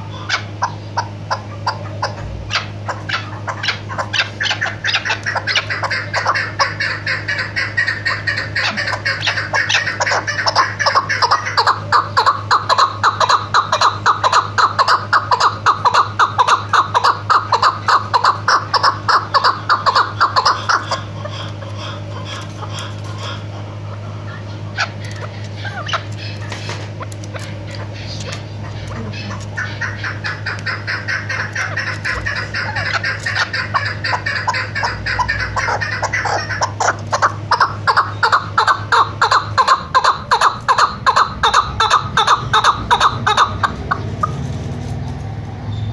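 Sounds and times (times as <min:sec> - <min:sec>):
partridge calling rapidly: 0:00.0 - 0:44.5.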